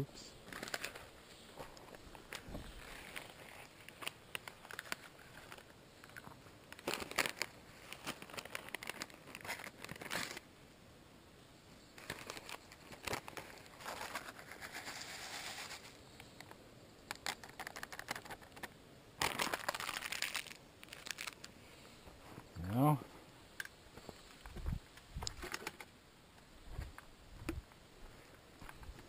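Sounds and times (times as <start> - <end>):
plastic packet crinkling: 0.4 - 1.1, 2.8 - 6.2, 6.8 - 10.4, 12.0 - 15.7, 17.1 - 21.5.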